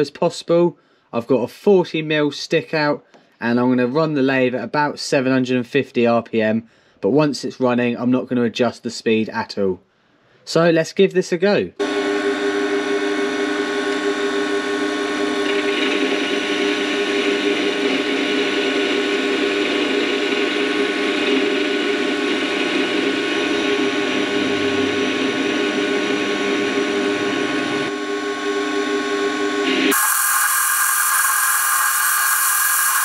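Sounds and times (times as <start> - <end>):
lathe whining: 11.8 - 33.0
cutting tool hiss: 29.8 - 33.0.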